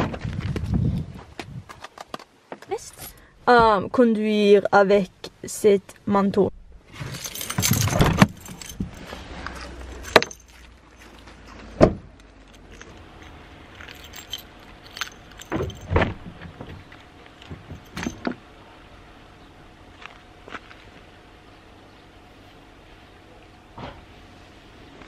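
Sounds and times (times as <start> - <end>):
car keys jangling: 7.0 - 9.1, 9.9 - 10.6, 12.5 - 16.0, 17.4 - 18.3.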